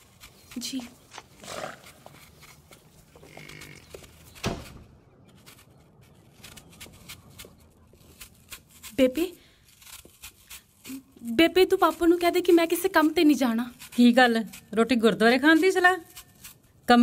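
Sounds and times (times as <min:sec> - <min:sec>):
light footsteps: 0:00.5 - 0:04.9
sharp thud: 0:04.4 - 0:05.0.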